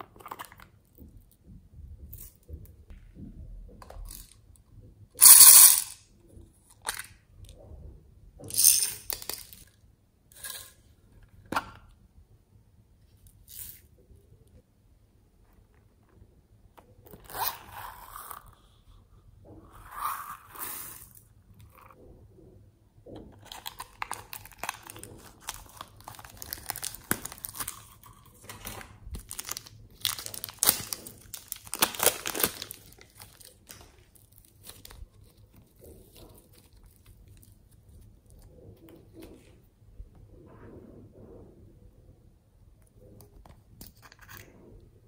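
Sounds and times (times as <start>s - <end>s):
crinkling handling noises: 23.2s - 39.7s.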